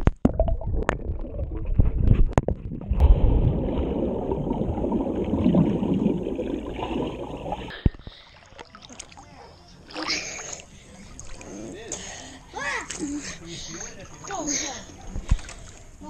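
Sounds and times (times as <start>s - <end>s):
muffled underwater churning: 0.2s - 11.8s.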